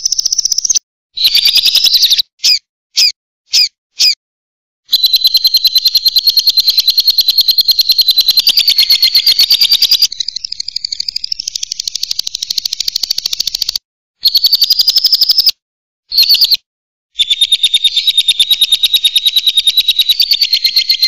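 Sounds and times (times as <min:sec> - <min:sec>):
lovebird chattering trill: 0:00.0 - 0:04.2, 0:04.9 - 0:15.5, 0:17.2 - 0:21.0.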